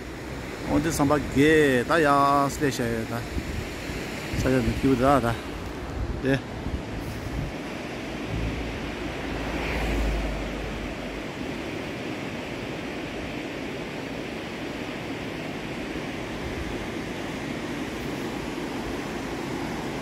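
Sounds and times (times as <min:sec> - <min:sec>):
fast river rushing: 0:00.0 - 0:20.0
wind buffeting microphone: 0:03.3 - 0:12.0.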